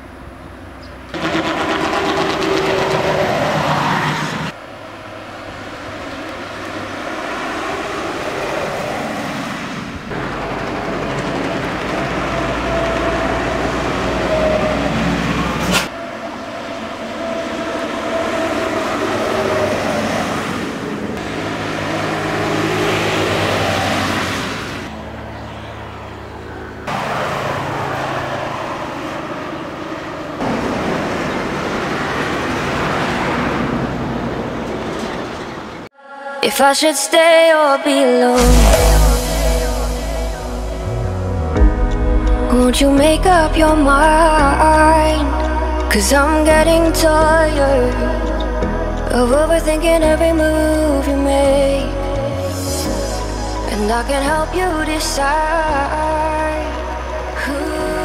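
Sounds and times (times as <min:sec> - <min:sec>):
coaches driving past: 0:00.1 - 0:35.9.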